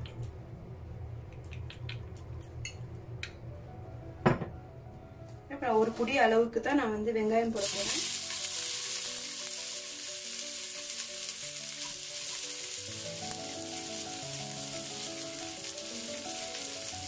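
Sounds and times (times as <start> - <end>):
onions sizzling in hot oil: 7.6 - 17.0.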